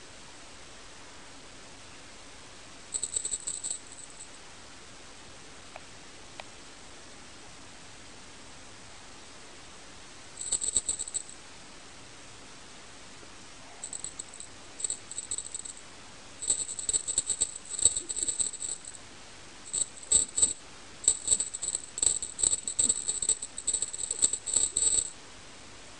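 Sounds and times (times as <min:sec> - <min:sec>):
jingle bell jingling: 0:02.9 - 0:04.2, 0:10.4 - 0:11.3, 0:13.8 - 0:15.8, 0:16.4 - 0:19.0, 0:19.7 - 0:25.1.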